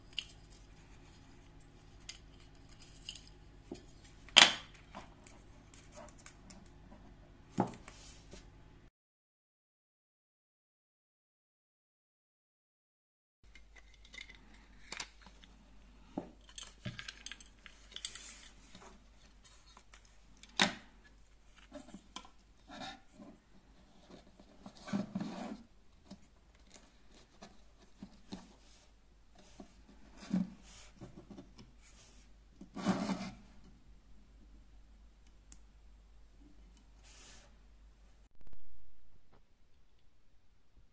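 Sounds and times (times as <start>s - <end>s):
small parts clicking and tapping: 1.9s - 5.4s, 13.5s - 15.6s, 16.2s - 22.4s.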